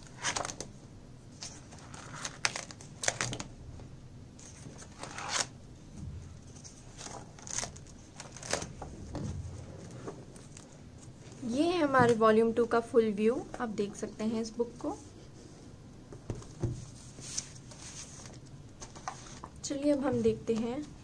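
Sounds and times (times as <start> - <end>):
paper pages turning: 0.0 - 0.7, 1.4 - 3.5, 4.4 - 5.5, 6.5 - 8.8, 17.1 - 19.5.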